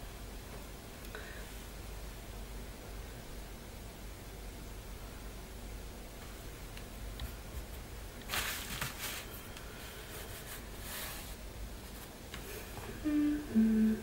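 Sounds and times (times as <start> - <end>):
hand rubbing paper cover: 7.6 - 12.2
woman humming: 12.6 - 14.0.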